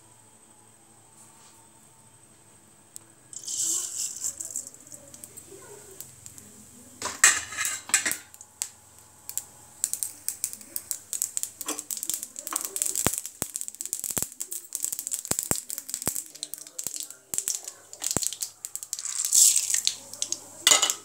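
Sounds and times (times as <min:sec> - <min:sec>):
crackles and pops: 0:02.9 - 0:21.0
hot oil sizzling: 0:02.9 - 0:21.0
rattling pour into oil: 0:03.4 - 0:05.6, 0:09.3 - 0:21.0.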